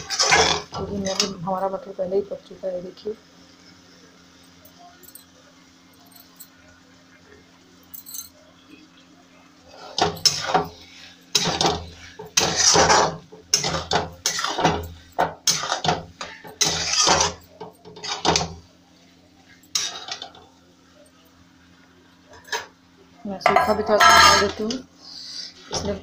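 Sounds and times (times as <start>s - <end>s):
spatula scraping metal pan: 0.0s - 1.4s, 9.7s - 18.5s, 19.7s - 20.3s, 23.5s - 24.8s.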